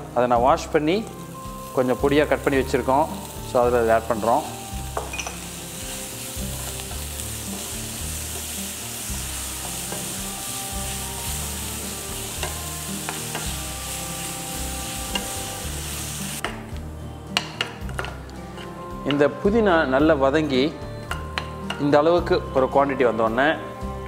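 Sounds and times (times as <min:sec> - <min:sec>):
food sizzling in hot oil: 0:01.0 - 0:16.8.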